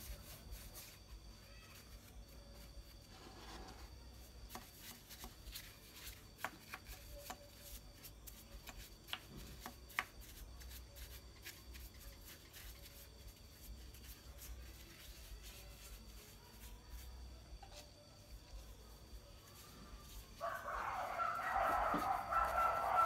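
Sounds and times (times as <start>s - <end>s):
faint low hum: 0.0s - 23.0s
paintbrush brushing and dabbing: 0.0s - 23.0s.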